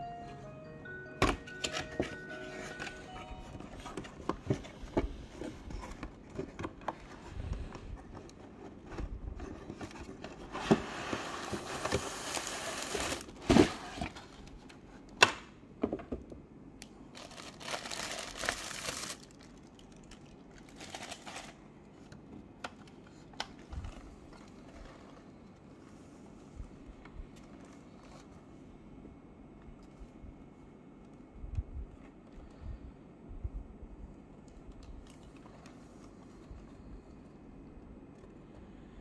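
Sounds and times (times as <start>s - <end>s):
bubble wrap crinkling: 17.1s - 21.6s.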